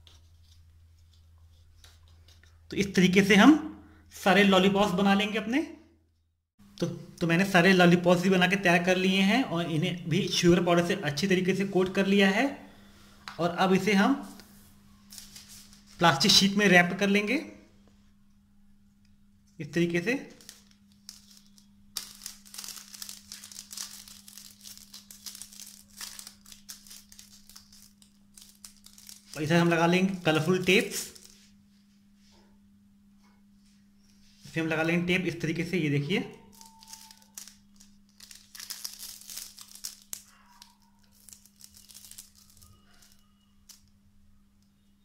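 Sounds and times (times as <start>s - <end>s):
low steady hum: 0.0s - 45.0s
plastic sheet crinkling: 15.0s - 16.0s, 20.3s - 31.6s, 36.5s - 43.9s.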